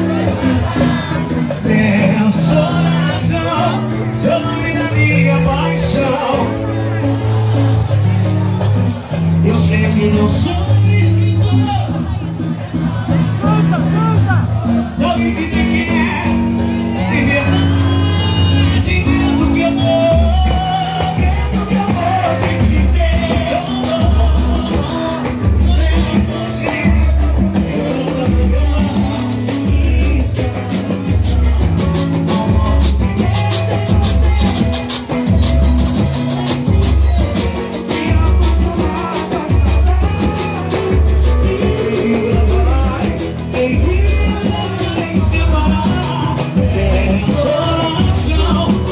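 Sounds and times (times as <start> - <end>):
acoustic guitar: 0.0 - 48.9
deep bass notes: 0.0 - 48.9
man singing: 0.0 - 48.9
quick percussion strokes: 20.4 - 48.9.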